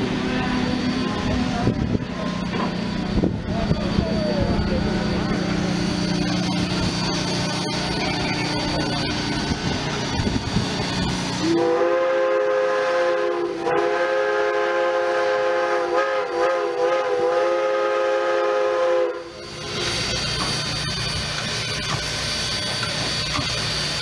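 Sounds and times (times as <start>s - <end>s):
steam whistle blasts: 11.4s - 19.4s.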